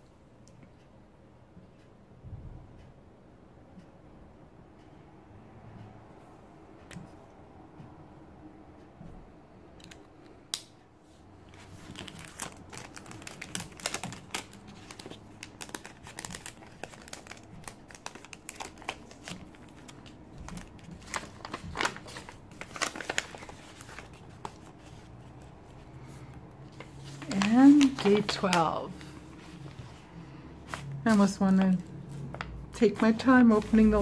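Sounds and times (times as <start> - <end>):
packaging crinkling and rustling: 11.4 - 30.0, 30.7 - 34.0.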